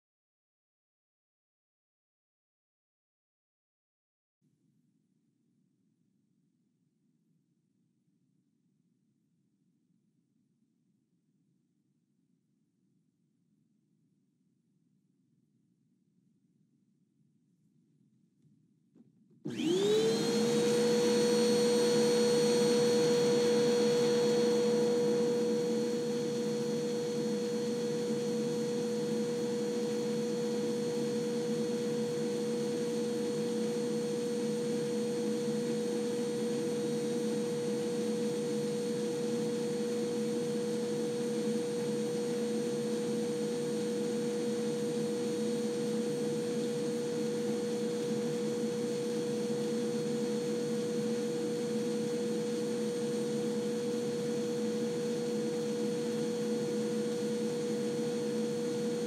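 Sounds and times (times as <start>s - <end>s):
vacuum cleaner running: 19.4s - 59.0s.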